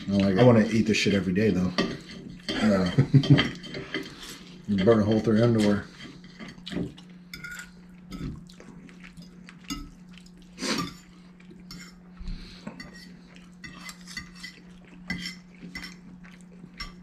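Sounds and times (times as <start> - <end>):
steady low hum: 0.0 - 17.0
forks clinking on plates: 1.6 - 8.3.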